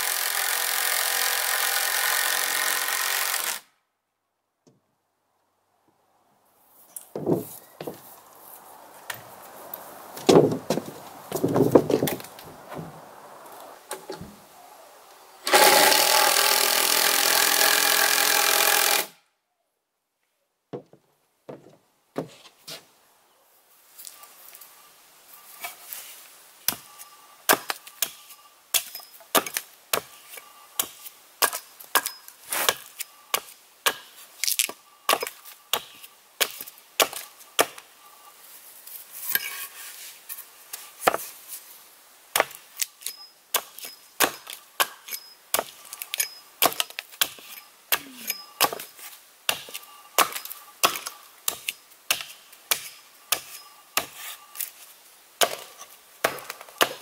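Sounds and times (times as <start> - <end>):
hatchet chopping wood: 27.5 - 30.2, 30.8 - 37.8, 41.0 - 41.3, 42.3 - 54.3, 55.4 - 57.0.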